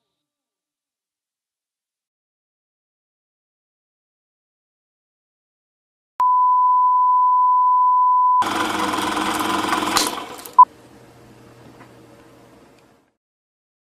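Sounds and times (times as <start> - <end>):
high electronic beep tone: 6.2 - 8.4
short loud beep: 6.2 - 8.4
click: 11.8 - 12.9.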